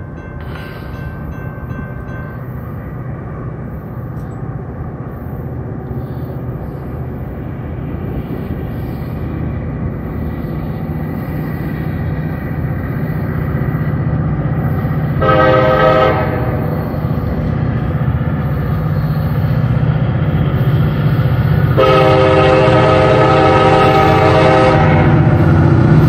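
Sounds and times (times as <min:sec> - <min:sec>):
locomotive engine rumble: 0:00.0 - 0:26.0
locomotive horn blast: 0:15.2 - 0:16.7, 0:21.7 - 0:25.4.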